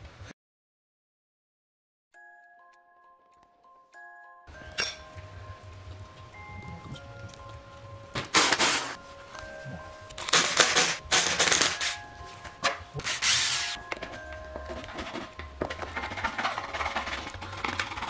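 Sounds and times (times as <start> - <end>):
electronic background music: 2.2 - 18.0
cordless drill running: 13.0 - 13.8.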